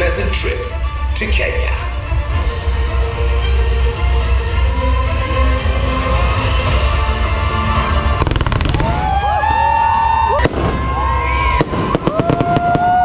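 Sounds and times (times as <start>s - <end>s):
background music: 0.0s - 13.0s
fireworks bangs and crackling: 8.0s - 13.0s.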